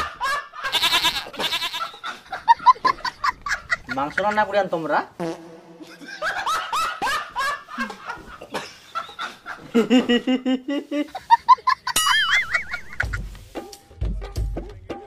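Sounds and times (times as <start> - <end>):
burst of laughter: 5.8 - 13.2
music beat with drums: 12.1 - 15.0.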